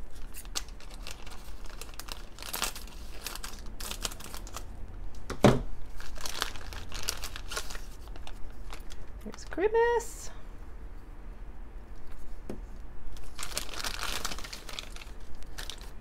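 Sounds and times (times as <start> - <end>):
plastic bag crinkling: 0.0 - 4.7, 5.8 - 9.6, 13.1 - 16.0.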